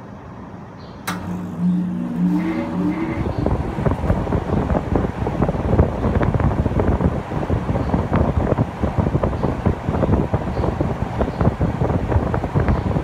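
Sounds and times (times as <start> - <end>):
air conditioner hum rising in pitch: 0.0 - 13.0
air conditioner switch click: 1.0 - 5.0
fluttering wind noise on microphone: 1.6 - 13.0.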